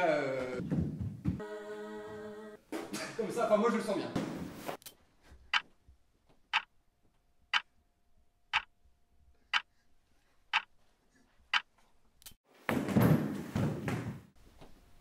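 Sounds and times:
clock ticking: 6.5s - 6.7s, 7.5s - 7.7s, 8.5s - 8.7s, 10.5s - 10.7s.

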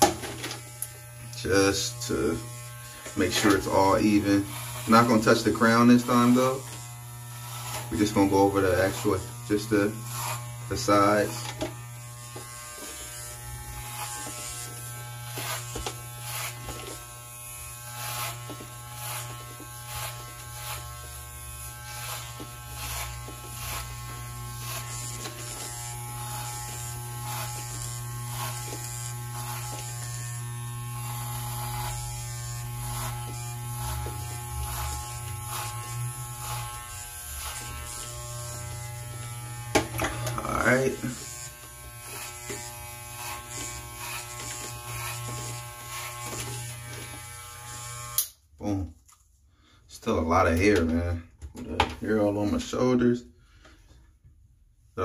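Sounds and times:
clipper blades cutting hair: 0.0s - 48.4s
electric hair clippers buzzing: 0.0s - 48.5s.

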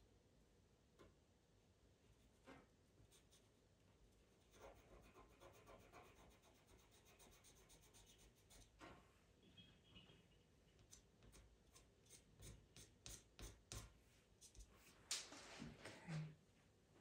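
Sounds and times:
pastel pencil scratching on paper: 4.4s - 8.8s, 10.8s - 14.7s.

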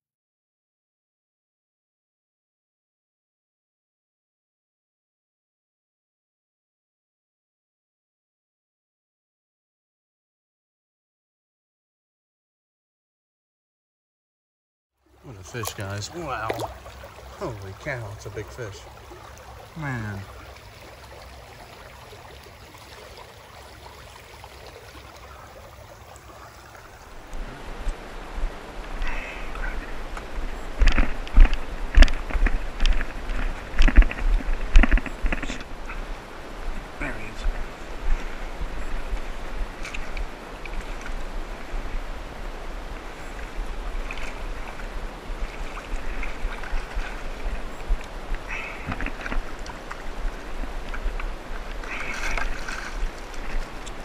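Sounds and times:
creek water rushing: 15.0s - 54.0s
wind rumble on microphone: 27.0s - 54.0s.

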